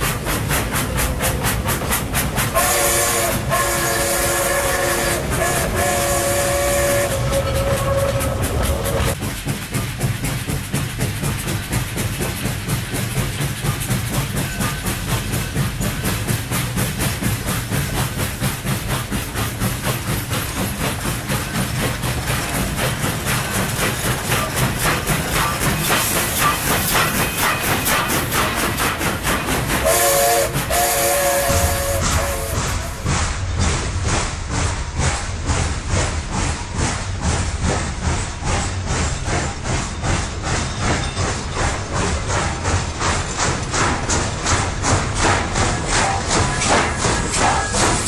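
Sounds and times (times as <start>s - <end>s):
steam hissing: 0.0s - 48.0s
steam train chugging: 0.0s - 48.0s
steam train whistle: 2.5s - 9.2s, 29.8s - 33.0s.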